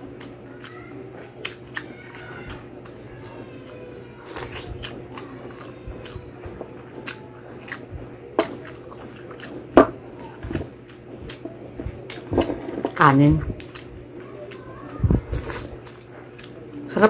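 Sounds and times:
wet chewing: 0.0 - 17.0.

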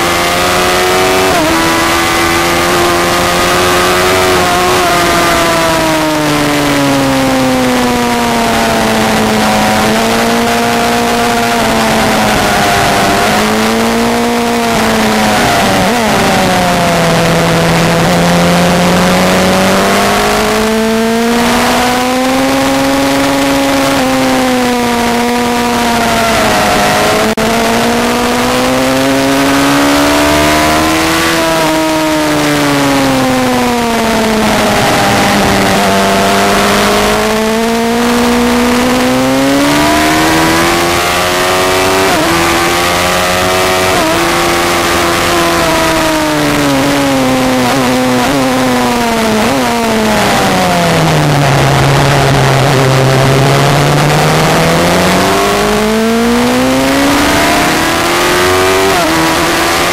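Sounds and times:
motorcycle engine revving: 0.0 - 59.9.

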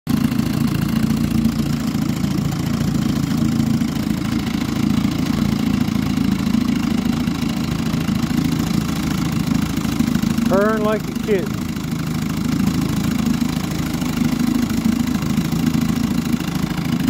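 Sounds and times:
outboard motor idling: 0.1 - 17.0
water churning: 0.1 - 17.0.

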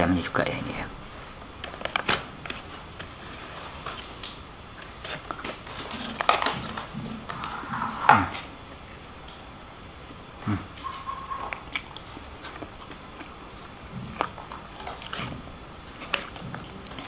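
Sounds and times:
close-up chewing: 1.6 - 8.4, 10.4 - 17.0.

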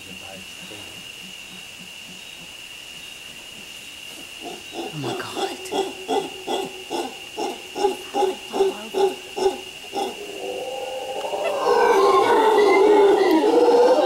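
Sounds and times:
howler monkey grunting and roaring: 4.0 - 14.0.

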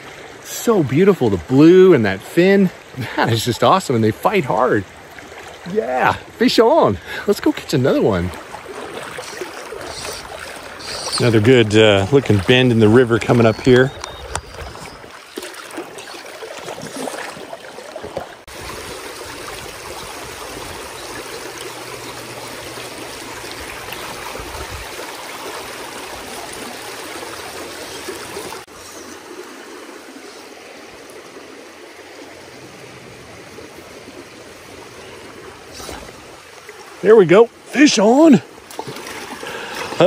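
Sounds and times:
creek rushing over gravel: 0.0 - 40.0.

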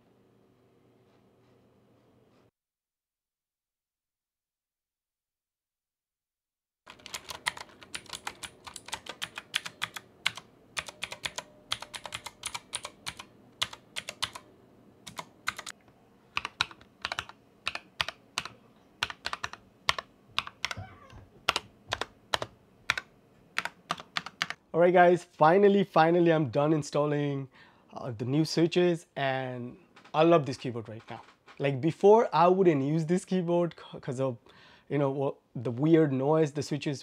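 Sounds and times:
mechanical keyboard typing: 6.9 - 14.4, 15.0 - 15.8, 16.4 - 20.8, 21.5 - 24.6.

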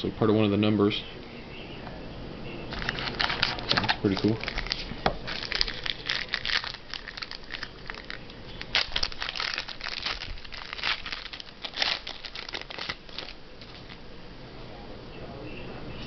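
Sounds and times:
plastic wrapper crinkling: 2.7 - 14.0.

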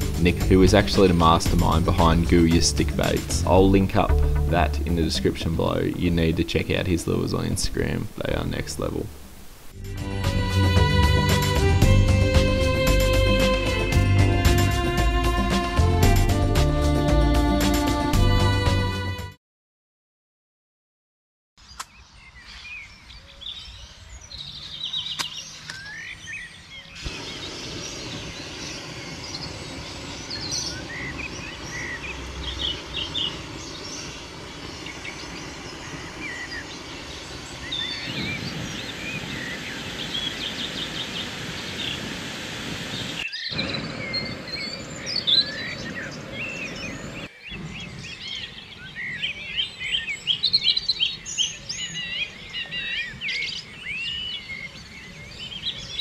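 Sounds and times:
birds chirping and singing: 0.0 - 9.1, 21.6 - 56.0
steady hiss: 0.0 - 15.7, 27.0 - 47.7.

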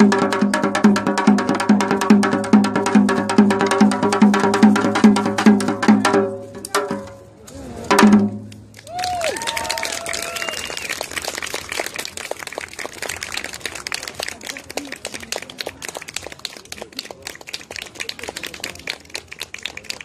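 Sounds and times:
small audience applauding: 8.7 - 20.0.

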